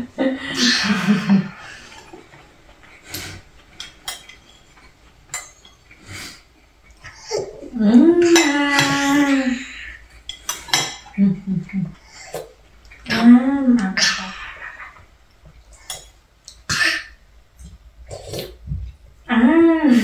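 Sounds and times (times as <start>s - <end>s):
spoons clinking on ceramic bowls: 3.8s - 5.9s, 10.2s - 11.2s
long drawn-out voice: 19.3s - 20.0s.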